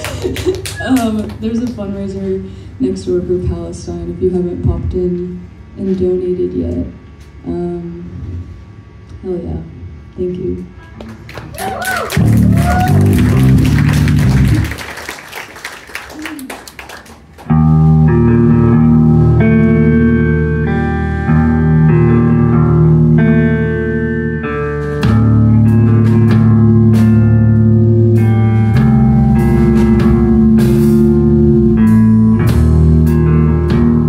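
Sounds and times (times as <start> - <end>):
live rock band playing: 12.1 - 15.0, 17.4 - 34.0.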